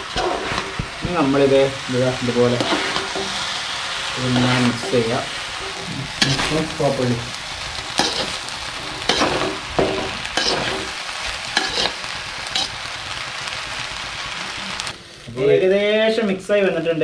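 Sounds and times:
metal spoon scraping a pan: 0:00.0 - 0:00.8, 0:02.5 - 0:03.6, 0:04.2 - 0:06.8, 0:07.8 - 0:12.8
rice sizzling in a pan: 0:00.0 - 0:17.0.

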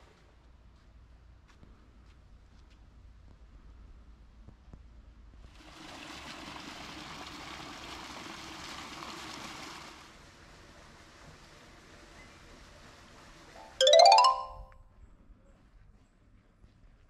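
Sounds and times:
fountain splashing into pool: 0:05.5 - 0:14.2.

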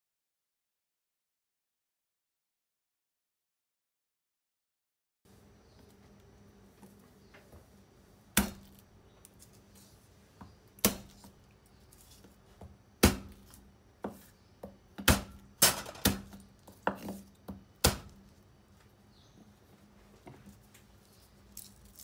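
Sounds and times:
knife smashing garlic on board: 0:08.4 - 0:08.8, 0:10.8 - 0:11.4, 0:12.0 - 0:18.2.

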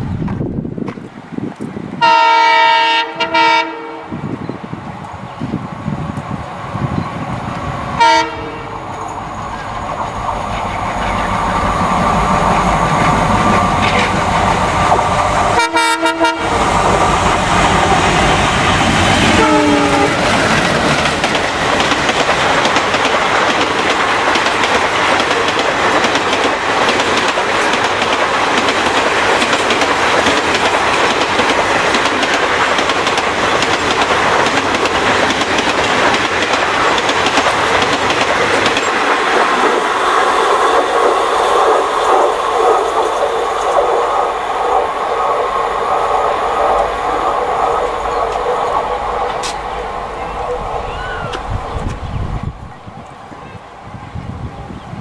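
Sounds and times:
train horn: 0:02.0 - 0:04.2, 0:08.0 - 0:10.9, 0:15.5 - 0:16.7, 0:19.2 - 0:20.3
diesel locomotives droning: 0:05.0 - 0:55.0
wheels clacking over rail joints: 0:07.0 - 0:44.3, 0:46.7 - 0:52.7.

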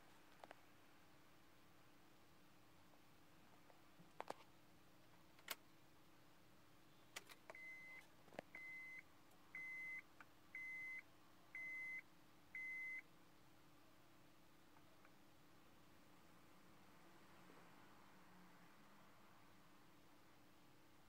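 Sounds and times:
car warning chime beeping: 0:08.6 - 0:09.0, 0:09.6 - 0:10.0, 0:10.6 - 0:11.0, 0:12.6 - 0:13.0.

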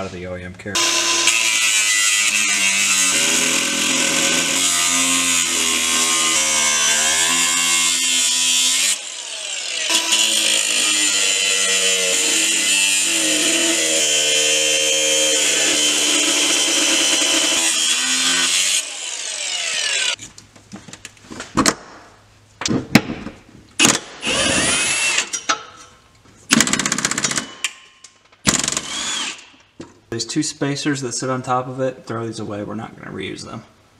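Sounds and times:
angle grinder cutting metal: 0:00.8 - 0:20.2, 0:24.2 - 0:25.5, 0:28.6 - 0:29.5
power socket tool bursts: 0:28.4 - 0:29.5.

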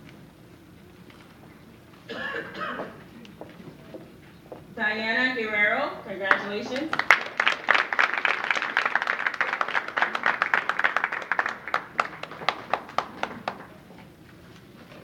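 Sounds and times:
audience applause: 0:06.8 - 0:13.8.

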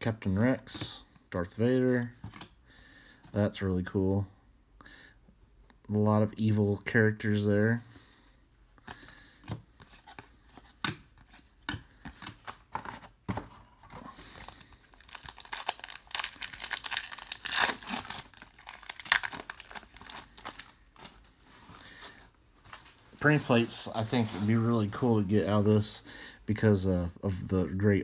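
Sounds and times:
card pack wrapper tearing and crinkling: 0:14.2 - 0:21.2.

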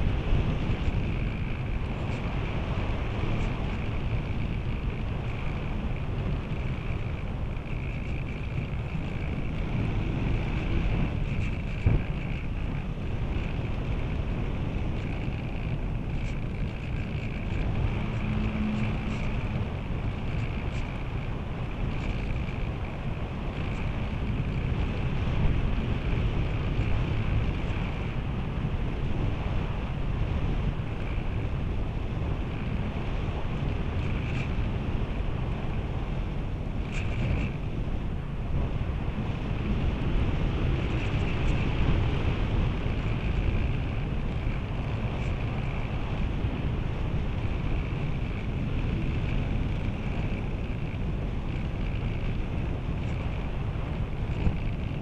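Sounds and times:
wind rushing over camera: 0:00.0 - 0:55.0.

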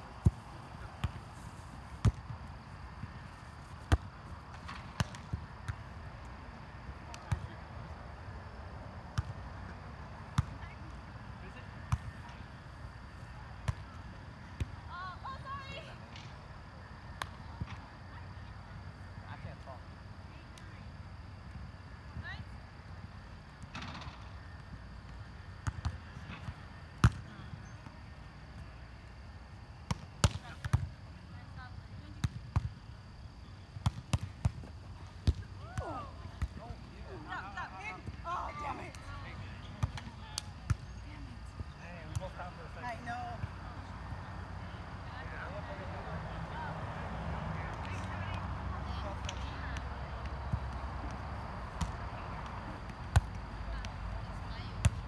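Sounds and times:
volleyball slaps by hand: 0:49.2 - 0:52.0.

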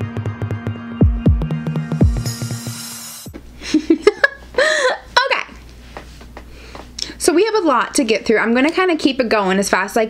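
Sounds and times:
electronic music with kick drums: 0:00.0 - 0:03.4.

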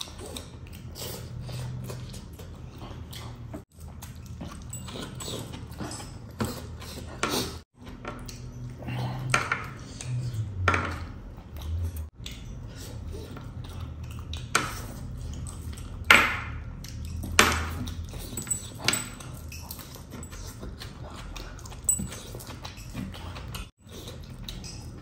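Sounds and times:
wet chewing and lip smacks: 0:11.4 - 0:18.4, 0:19.2 - 0:25.0.

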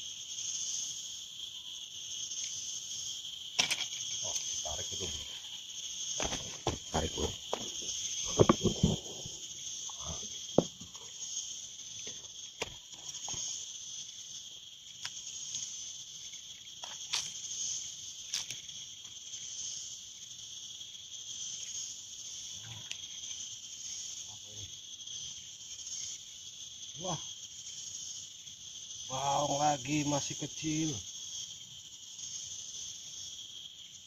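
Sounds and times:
insects droning: 0:00.0 - 0:34.0
loud knocks and scuffs: 0:06.2 - 0:09.1.

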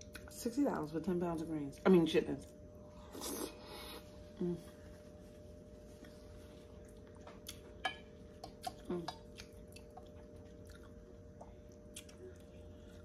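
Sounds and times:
faint background hum: 0:00.0 - 0:13.0
person humming: 0:04.4 - 0:04.7, 0:08.8 - 0:09.2
person chewing: 0:06.0 - 0:13.0.

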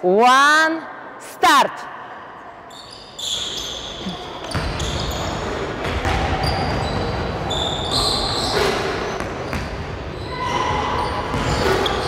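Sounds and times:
basketballs bouncing on gym floor: 0:04.4 - 0:12.0.

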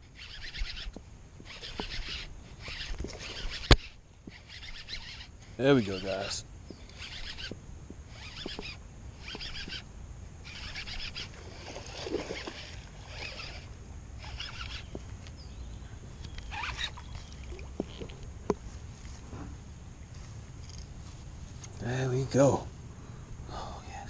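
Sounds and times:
fishing reel winding: 0:00.1 - 0:09.8, 0:10.4 - 0:15.0, 0:16.2 - 0:18.2
sharp clicks: 0:05.9 - 0:09.8
water splashing: 0:11.2 - 0:15.0, 0:16.5 - 0:18.6.

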